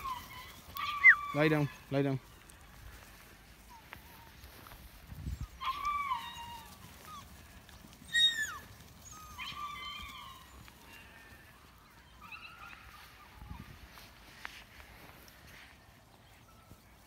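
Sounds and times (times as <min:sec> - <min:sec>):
high-pitched animal calls: 0:00.0 - 0:01.8, 0:05.4 - 0:11.3.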